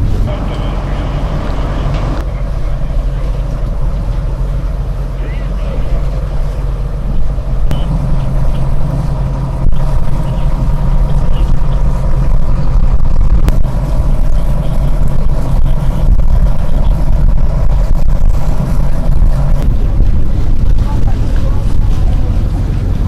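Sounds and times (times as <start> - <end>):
boat engine droning: 0.0 - 23.0.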